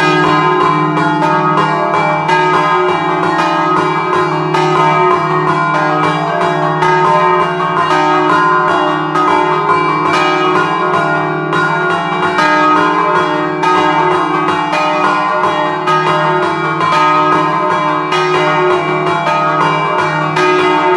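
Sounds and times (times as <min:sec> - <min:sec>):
church bells pealing: 0:00.0 - 0:20.9.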